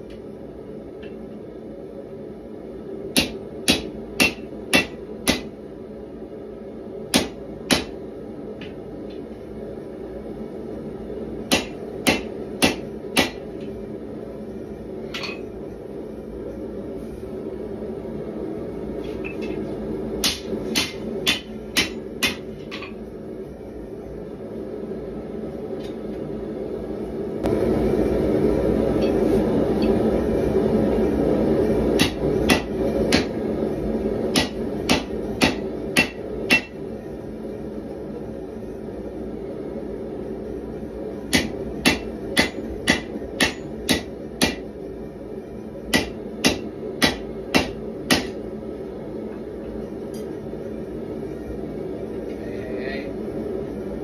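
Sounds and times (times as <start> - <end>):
gas forge roaring: 0.0 - 54.0
hammer striking steel on anvil: 3.2 - 5.5, 7.1 - 8.0, 11.5 - 13.4, 20.2 - 23.0, 32.0 - 33.3, 34.3 - 36.8, 41.3 - 44.7, 45.9 - 48.4.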